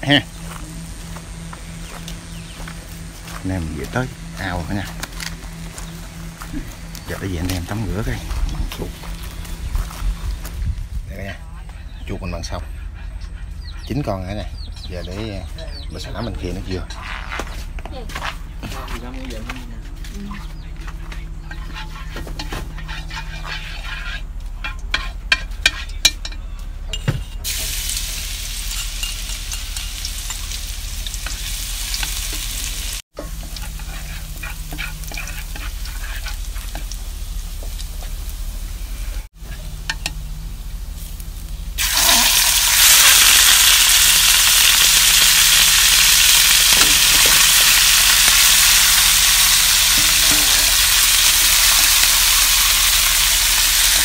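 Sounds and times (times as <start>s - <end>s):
meat sizzling in a pan: 27.5s - 38.7s, 41.8s - 54.0s.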